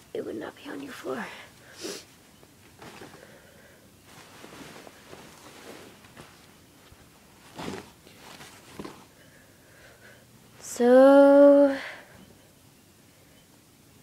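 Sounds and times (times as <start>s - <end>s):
clothing rustling: 2.6s - 9.4s.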